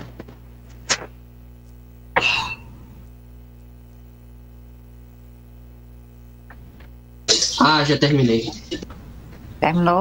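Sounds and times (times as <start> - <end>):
low electrical hum: 0.0 - 10.0
person clearing throat: 2.1 - 2.9.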